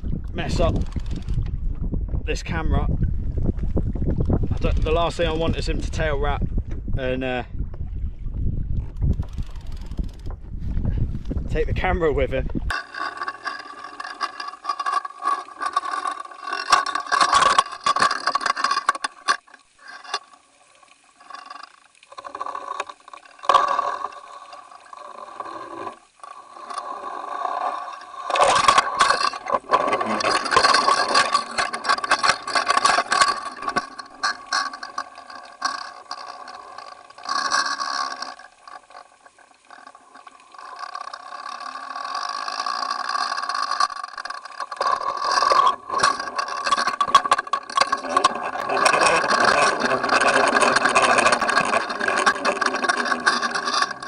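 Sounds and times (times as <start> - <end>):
muffled underwater rush: 0.0 - 12.7
rattling scrapes: 0.4 - 1.5, 4.3 - 6.4, 8.9 - 54.0.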